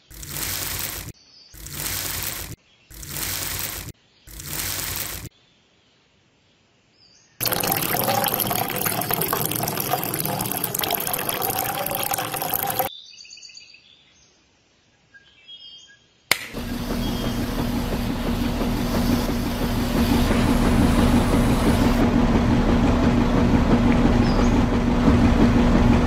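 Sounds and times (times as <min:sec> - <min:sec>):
small electric motor humming: 0:00.0 - 0:05.3
water pouring into a tin can: 0:07.4 - 0:12.9, 0:16.5 - 0:22.0
switch click: 0:16.3 - 0:16.6.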